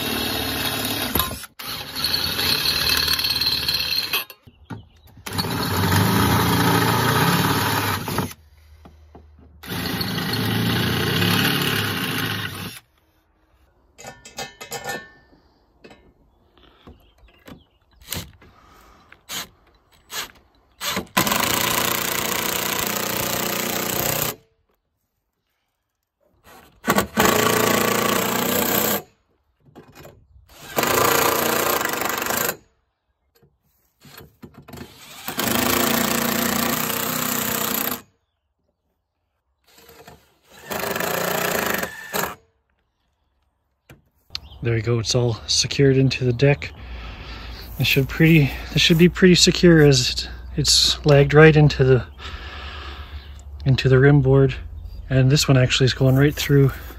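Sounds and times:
impact driver hammering screws: 0:19.2 - 0:24.4, 0:26.5 - 0:29.1, 0:29.8 - 0:32.6, 0:34.0 - 0:38.1, 0:39.7 - 0:42.4.

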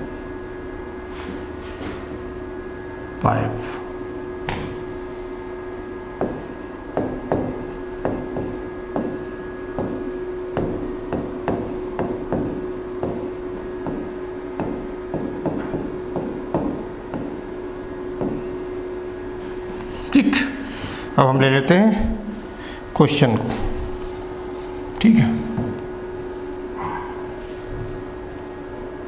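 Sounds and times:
faint steady hum: 0:00.0 - 0:29.0
chalk scraping a line: 0:04.8 - 0:05.4
chalk tapping and scratching: 0:04.8 - 0:05.4, 0:06.2 - 0:17.4.

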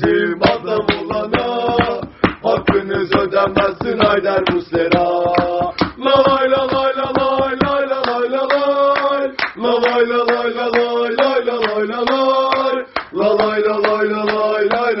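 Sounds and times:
steady beat of sharp hits: 0:00.0 - 0:07.8
men chanting a melody: 0:00.0 - 0:15.0.

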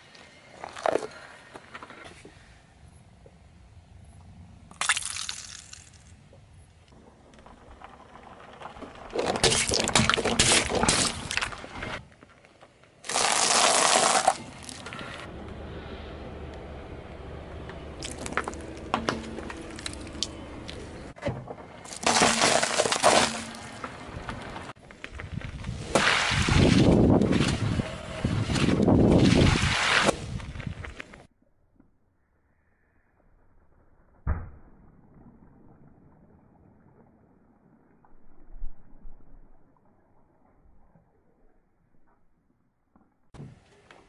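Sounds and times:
beads spilling out: 0:04.7 - 0:06.1, 0:13.0 - 0:14.9, 0:21.8 - 0:23.8
car tyre crushing objects: 0:07.0 - 0:12.3, 0:13.0 - 0:15.3, 0:17.9 - 0:31.2
tyre crushing plastic cups: 0:21.9 - 0:23.9.

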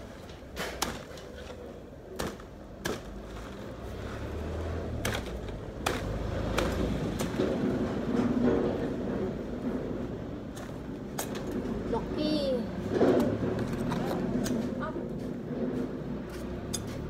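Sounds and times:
cleaver chopping roots: 0:00.5 - 0:07.9.

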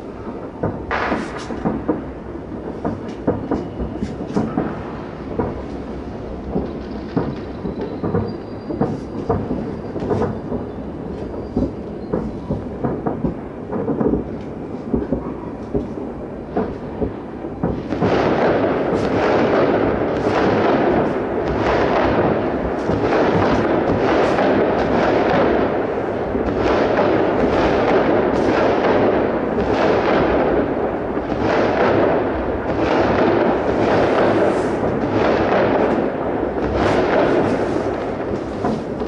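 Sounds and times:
fireworks booming: 0:00.0 - 0:39.0
fireworks crackling rumble: 0:00.0 - 0:39.0.

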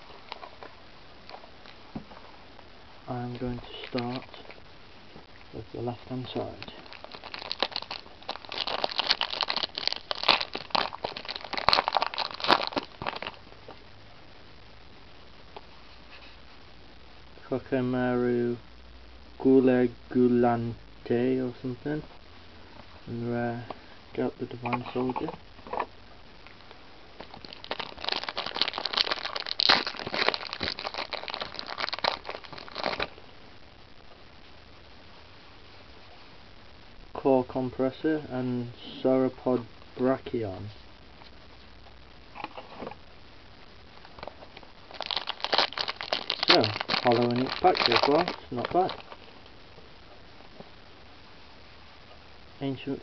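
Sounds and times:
foil wrapper crinkling: 0:03.6 - 0:04.5, 0:06.4 - 0:13.4, 0:27.2 - 0:33.2, 0:44.0 - 0:49.4.

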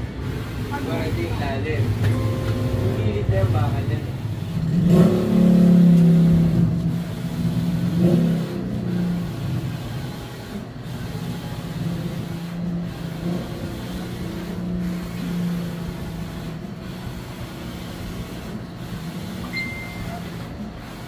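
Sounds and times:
printer whirring and humming: 0:00.0 - 0:21.0.

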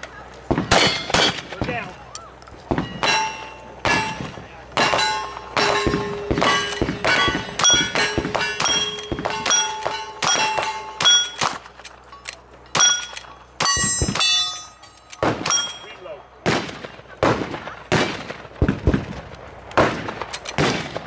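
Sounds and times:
gunshots: 0:00.5 - 0:01.9, 0:02.7 - 0:11.8, 0:15.2 - 0:21.0
steel plate ringing clang: 0:02.8 - 0:16.2.

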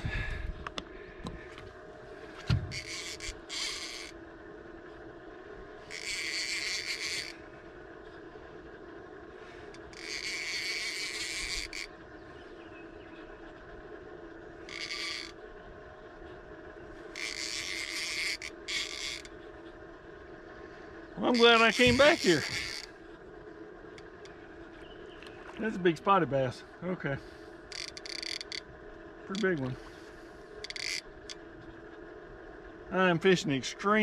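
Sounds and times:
steady low hum: 0:00.0 - 0:34.0
fishing reel whirring: 0:02.3 - 0:12.2, 0:13.4 - 0:15.6, 0:17.0 - 0:20.3, 0:21.1 - 0:24.8, 0:27.5 - 0:32.4.

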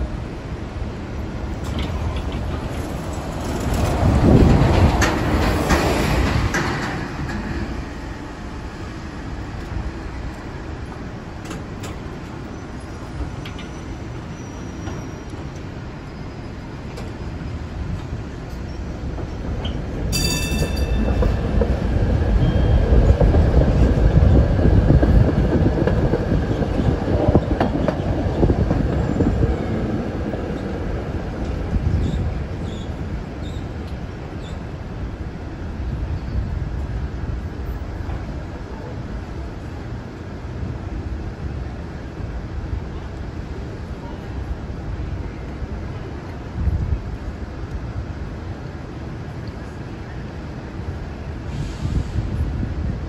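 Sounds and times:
bus passing: 0:00.0 - 0:13.4
streetcar wheels rumbling on rails: 0:00.0 - 0:53.0
short high ring: 0:20.1 - 0:21.1.

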